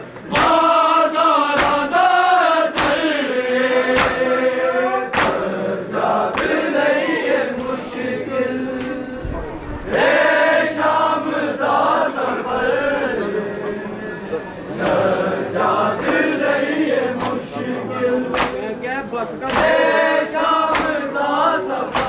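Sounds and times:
chest-beating slaps: 0.2s - 0.8s, 1.5s - 2.0s, 2.7s - 3.2s, 3.8s - 4.4s, 5.1s - 5.5s, 6.3s - 6.7s, 17.2s - 18.7s, 19.4s - 19.8s, 20.6s - 21.1s
crowd of men chanting: 0.2s - 22.0s.

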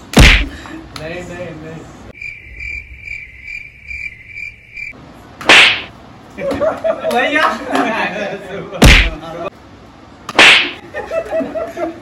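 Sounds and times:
cricket chirps: 2.1s - 5.0s
hand slapping helmet: 10.3s - 10.8s.

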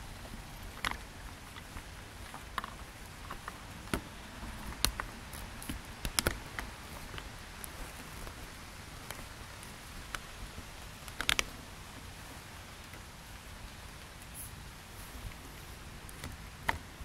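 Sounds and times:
hands clicking bicycle controls: 0.7s - 8.4s, 11.0s - 11.5s.

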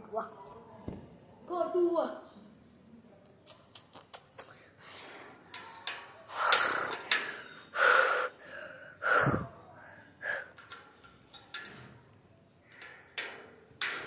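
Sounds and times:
boy breathing and gasping: 6.3s - 10.7s.

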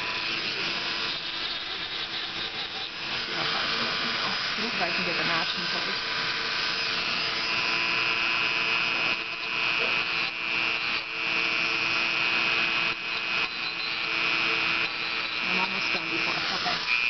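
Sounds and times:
sanding drum rasping on beak: 0.0s - 6.0s, 13.1s - 17.0s
rotary tool whining: 0.0s - 17.0s.

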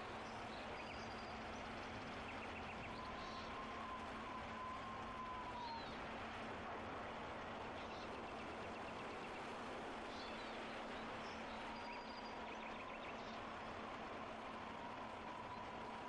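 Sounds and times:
faint bird chirps: 2.3s - 6.0s.

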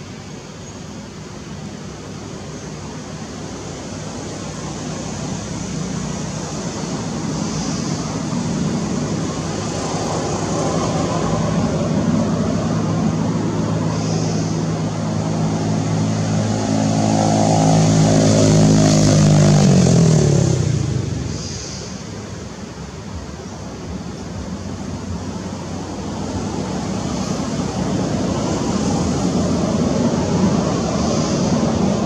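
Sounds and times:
vehicle engine driving past: 4.9s - 22.2s.

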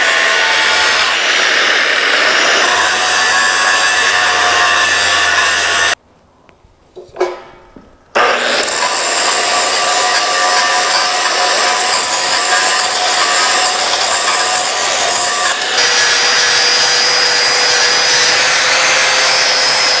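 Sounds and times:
angle grinder grinding metal: 0.0s - 6.0s, 8.2s - 20.0s
metal clunk: 7.0s - 7.9s.

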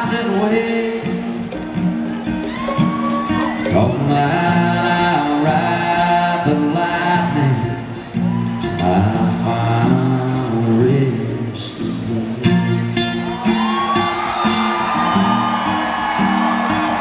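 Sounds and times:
man singing: 0.0s - 1.4s, 3.4s - 8.0s, 8.6s - 13.0s
strummed acoustic guitar: 0.0s - 17.0s.

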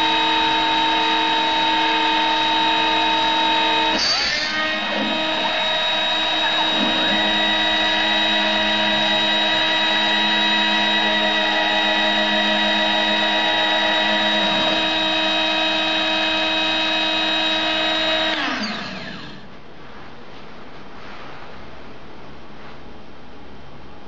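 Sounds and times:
motor spinning down: 0.0s - 19.4s
spindle motor whining: 0.0s - 19.5s.

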